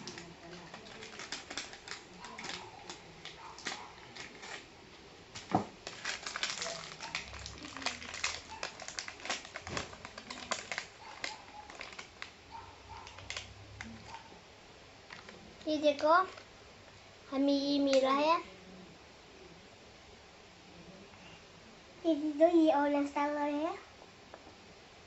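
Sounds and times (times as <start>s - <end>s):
plastic candy wrapper crinkling: 0.0s - 4.7s, 5.3s - 14.2s, 15.0s - 16.5s.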